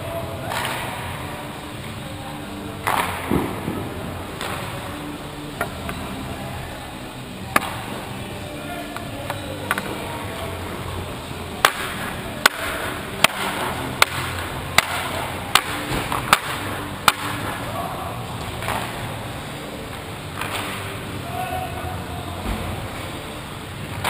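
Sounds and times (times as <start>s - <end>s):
hockey stick tapping on ice: 11.6s - 17.4s.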